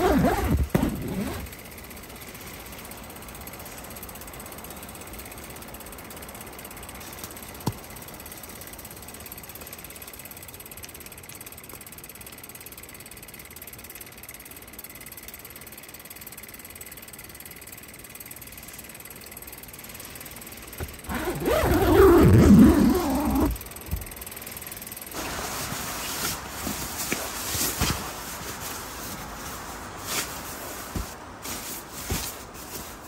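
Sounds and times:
tent door zipper pulled: 0.0 - 1.5, 21.0 - 23.6
wind through forest: 0.0 - 33.0.

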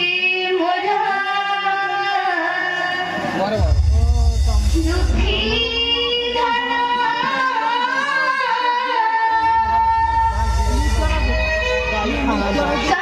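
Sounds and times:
deep steady bass: 3.6 - 6.5, 9.6 - 12.9.

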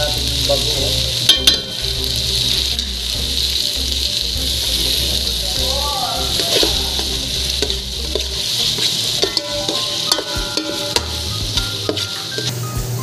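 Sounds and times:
food sizzling in hot oil: 0.0 - 13.0
spoon stirring and scraping pot: 6.3 - 12.6.

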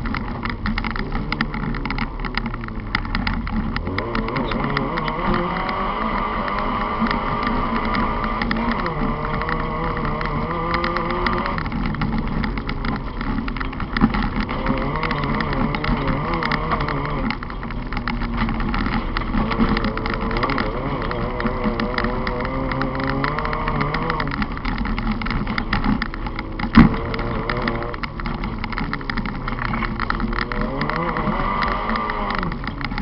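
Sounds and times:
car shell rattling: 0.0 - 33.0
gravel striking car: 0.0 - 33.0
car engine revving hard: 1.0 - 33.0.

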